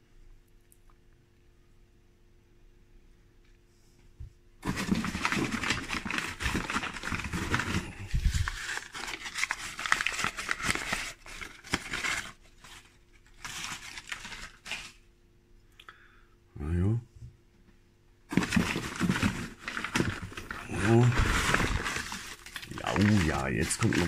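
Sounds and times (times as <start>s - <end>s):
paper crinkling and rustling: 4.6s - 15.0s, 18.3s - 24.0s.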